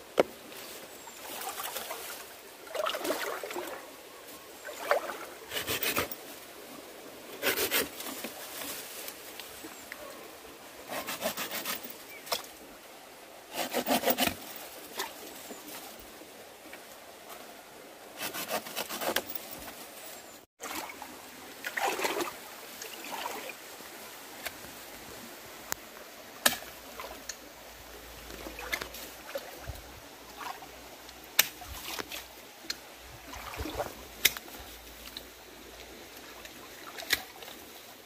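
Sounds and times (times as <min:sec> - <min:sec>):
stream flowing: 0:00.0 - 0:19.1, 0:20.6 - 0:38.0
hand tools digging in rocky ground: 0:05.5 - 0:06.2, 0:07.3 - 0:08.6, 0:10.9 - 0:12.5, 0:13.5 - 0:15.6, 0:18.2 - 0:19.8.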